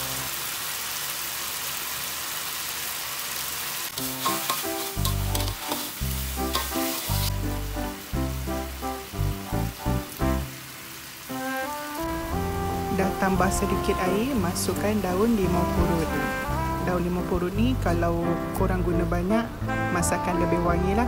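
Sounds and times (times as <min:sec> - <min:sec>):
food sizzling in a wok: 0:00.0 - 0:17.7
metal spatula stirring: 0:03.9 - 0:07.4
background music with bass: 0:04.9 - 0:10.5, 0:11.5 - 0:21.0.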